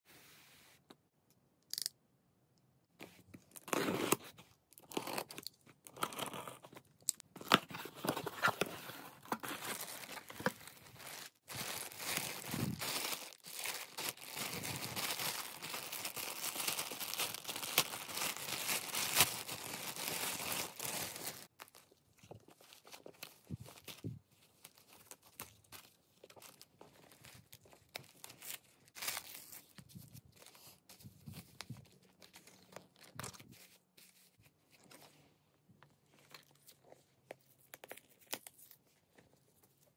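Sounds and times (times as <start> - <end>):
tissue paper rustling: 7.9 - 21.8
packaging tearing and crackling: 9.2 - 21.8
plastic bag crinkling: 9.6 - 21.8.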